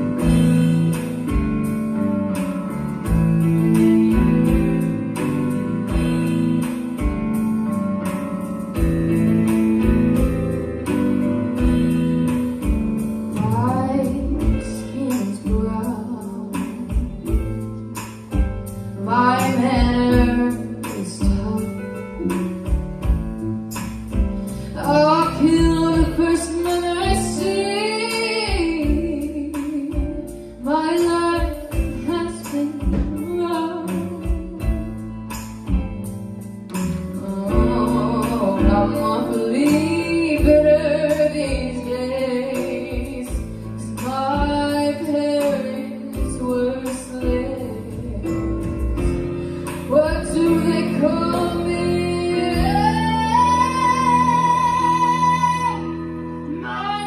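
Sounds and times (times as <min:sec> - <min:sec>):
instrumental accompaniment: 0:00.0 - 0:57.0
woman singing into microphone: 0:11.6 - 0:17.7, 0:18.9 - 0:22.8, 0:24.6 - 0:35.2, 0:37.2 - 0:57.0.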